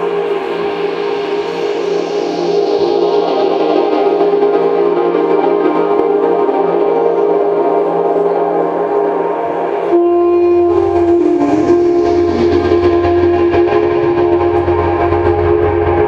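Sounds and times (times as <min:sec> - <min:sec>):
droning intro music: 0:00.0 - 0:16.0
held horn-like tone: 0:06.7 - 0:16.0
low rumble: 0:10.1 - 0:16.0.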